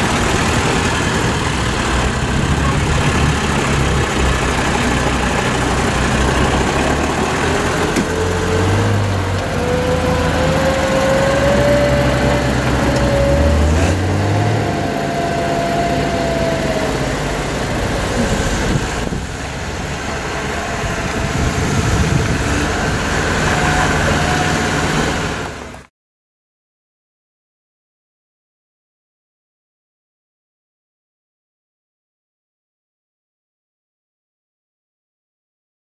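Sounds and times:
diesel engine running under load: 0.0 - 25.9.

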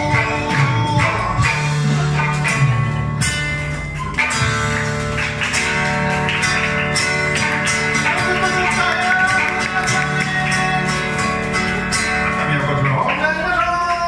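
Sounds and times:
plucked lute and acoustic guitar: 0.0 - 13.6.

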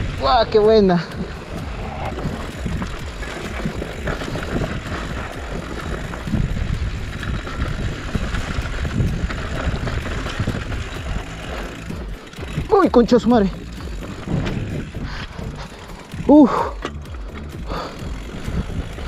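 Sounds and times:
bike rattling and knocking: 0.0 - 19.0
bike tyres rumbling on dirt: 0.0 - 19.0
wind on microphone: 1.2 - 12.7.

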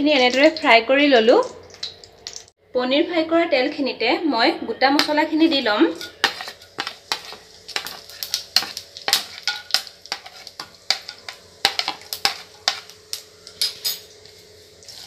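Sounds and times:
oil sizzling: 0.0 - 2.6, 4.9 - 15.0
metal spoon scraping and clicking: 6.0 - 14.1.

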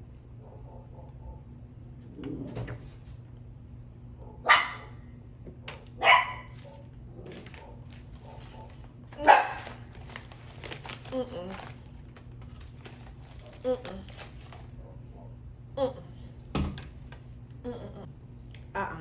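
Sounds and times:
dog barking: 0.4 - 1.5, 4.2 - 5.0, 5.6 - 9.8, 14.8 - 15.4.

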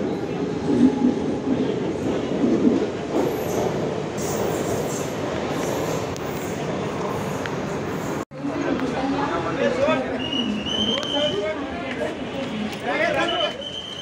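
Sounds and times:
electric train rumbling: 0.0 - 14.0
high wheel squeal: 13.2 - 14.0.

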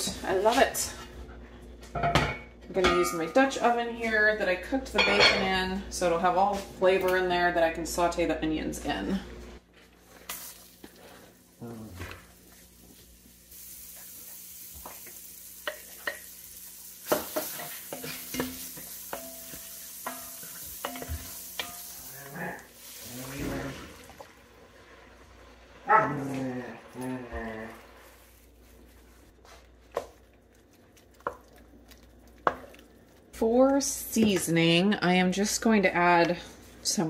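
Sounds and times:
onions sizzling in fat: 10.0 - 35.7
broth pouring into pot: 19.6 - 29.4.

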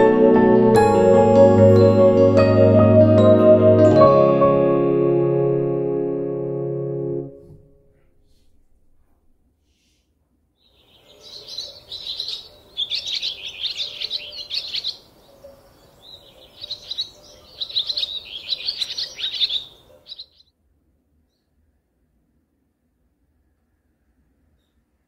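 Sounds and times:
small birds chirping: 10.6 - 20.5.

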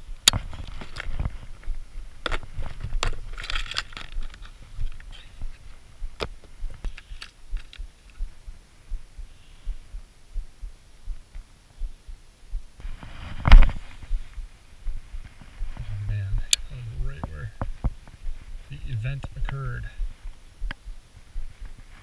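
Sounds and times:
low thumps: 7.5 - 21.8.

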